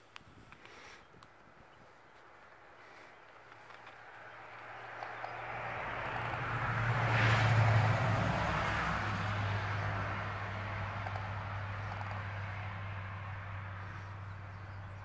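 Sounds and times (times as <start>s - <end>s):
low engine hum: 1.9s - 15.0s
road vehicle driving past: 3.3s - 15.0s.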